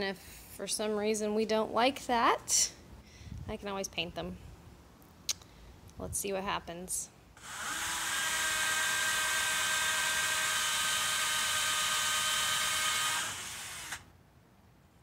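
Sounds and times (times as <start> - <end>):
cordless drill drilling: 7.4 - 14.1.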